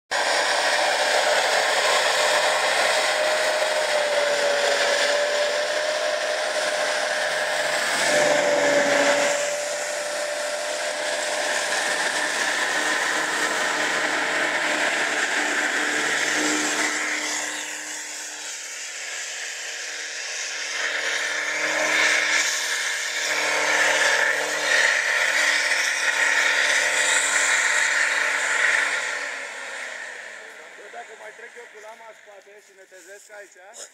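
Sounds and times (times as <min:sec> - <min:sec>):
off-road vehicle engine revving: 0:00.1 - 0:33.9.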